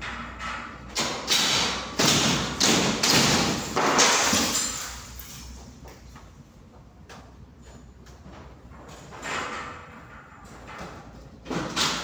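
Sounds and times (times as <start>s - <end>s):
ceiling panels thudding and cracking: 0.0s - 5.5s.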